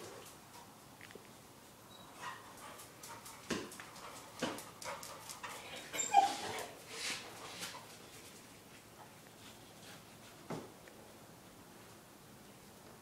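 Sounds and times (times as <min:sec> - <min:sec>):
dog whimpering and yipping: 0:05.8 - 0:06.8.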